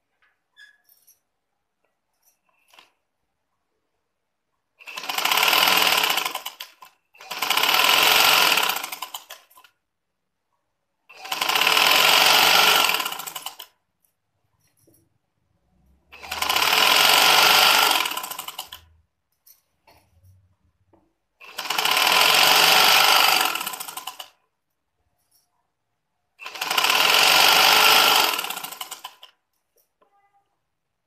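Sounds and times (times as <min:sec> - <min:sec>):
sewing machine stitching: 0:04.8 - 0:09.8, 0:11.1 - 0:13.8, 0:15.9 - 0:19.0, 0:21.4 - 0:24.4, 0:26.4 - 0:29.4.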